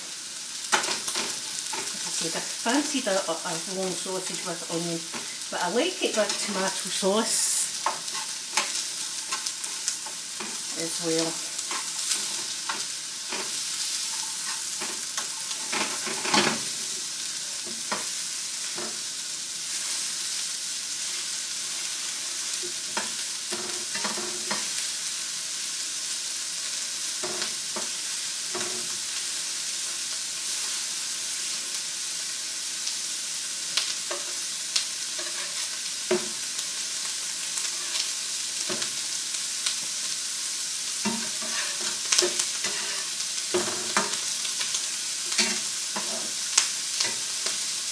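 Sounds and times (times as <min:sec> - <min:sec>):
sausages sizzling in pan: 0:00.0 - 0:47.9
utensil scraping frying pan: 0:03.8 - 0:17.0, 0:21.8 - 0:24.8, 0:27.2 - 0:29.0, 0:34.1 - 0:36.8, 0:37.6 - 0:39.0, 0:41.0 - 0:47.6.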